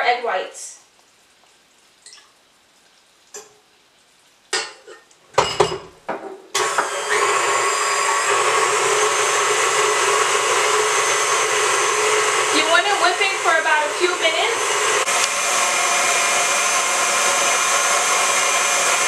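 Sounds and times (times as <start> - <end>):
stand mixer whisking: 6.6 - 19.0.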